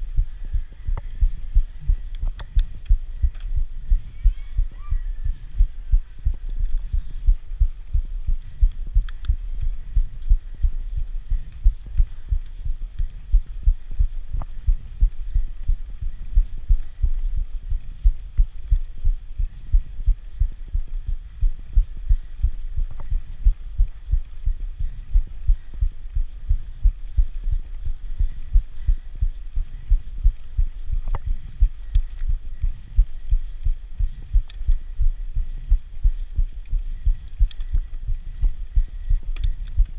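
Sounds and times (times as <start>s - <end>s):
faint clicks: 2.1s - 3.6s, 8.7s - 10.3s, 31.8s - 32.3s, 34.4s - 34.9s, 37.2s - 38.0s, 39.3s - 39.9s.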